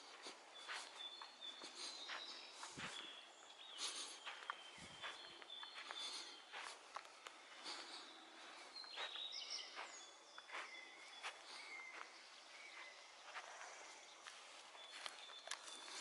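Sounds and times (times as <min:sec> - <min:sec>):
footsteps on forest floor: 0:00.0 - 0:16.0.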